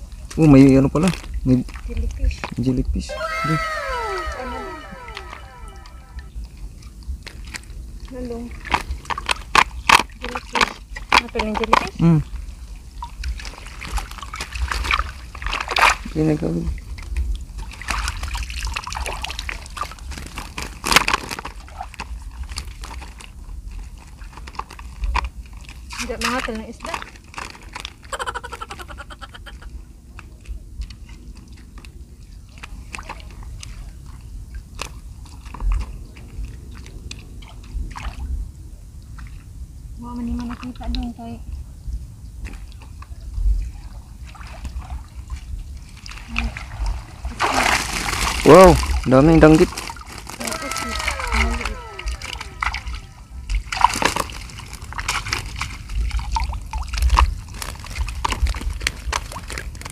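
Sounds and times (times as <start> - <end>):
shallow water sloshing and splashing: 0.0 - 2.8, 3.7 - 59.9
wind rumble on microphone: 0.0 - 28.0, 29.3 - 59.9
low steady rumble: 49.8 - 58.1.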